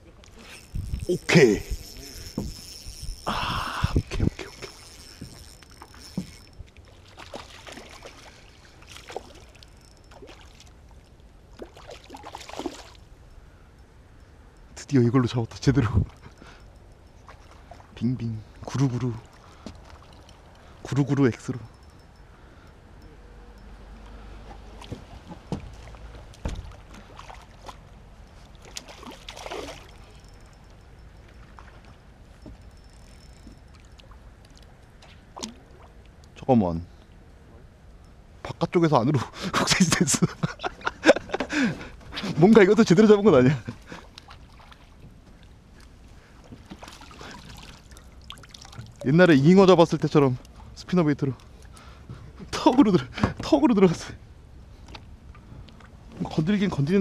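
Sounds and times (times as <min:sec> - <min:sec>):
faint water movement: 0:00.0 - 0:38.4, 0:39.2 - 0:53.3
fish splashing in water: 0:04.5 - 0:10.8, 0:28.6 - 0:30.1.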